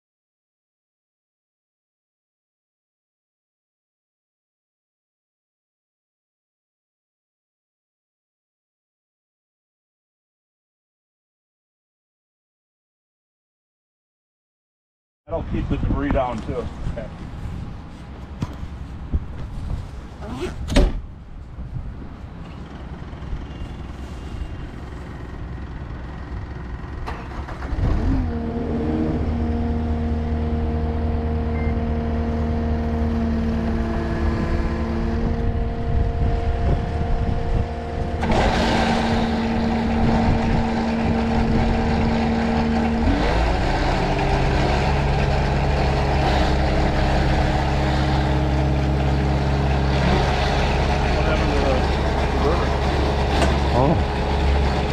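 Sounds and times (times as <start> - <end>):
diesel engine running under load: 21.9 - 54.9
hydraulic whine: 27.0 - 54.9
rotor grinding through soil and stones: 38.0 - 54.9.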